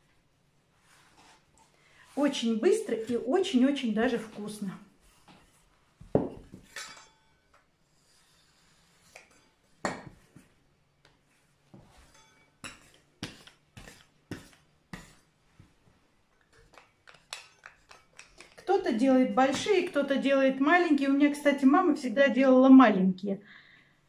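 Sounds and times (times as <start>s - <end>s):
kitchen tools knocking on worktop: 6.0s - 7.0s.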